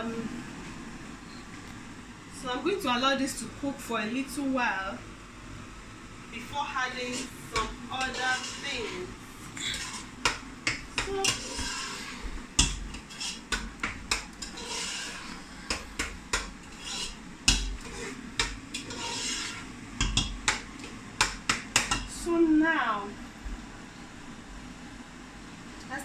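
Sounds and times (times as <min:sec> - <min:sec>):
spoon scraping a cooking pot: 0:07.0 - 0:22.0.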